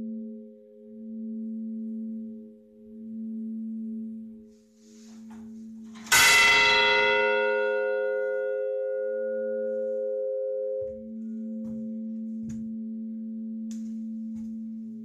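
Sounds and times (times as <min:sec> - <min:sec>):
low hum of ringing bell: 0:00.0 - 0:15.0
church bell struck by clapper: 0:05.4 - 0:14.6.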